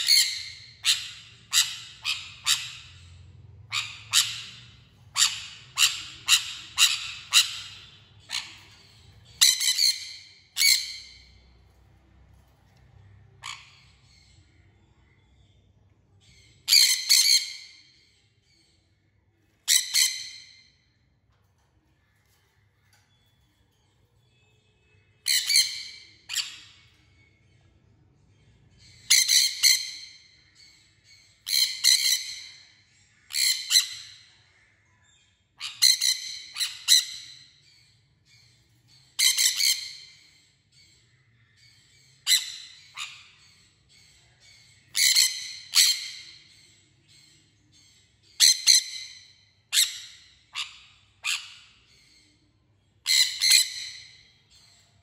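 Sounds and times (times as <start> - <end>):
parrots screeching: 0.0 - 12.6, 13.3 - 14.4, 16.6 - 18.1, 19.6 - 20.7, 25.2 - 27.0, 28.9 - 34.6, 35.6 - 37.8, 38.4 - 41.1, 41.7 - 47.3, 48.4 - 52.2, 53.0 - 54.8.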